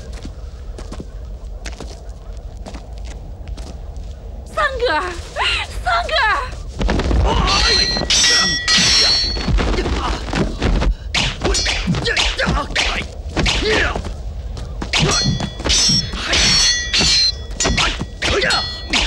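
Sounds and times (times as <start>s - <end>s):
sword blades clashing: 7.5s - 9.6s, 11.2s - 14.0s, 14.9s - 19.0s.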